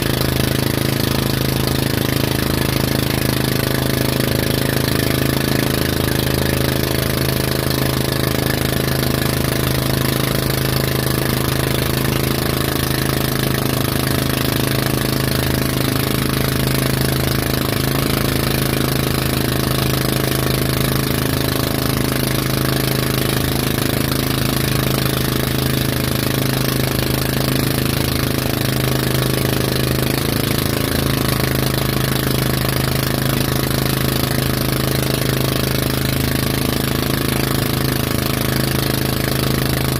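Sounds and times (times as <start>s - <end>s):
boat engine hum: 0.0s - 39.9s.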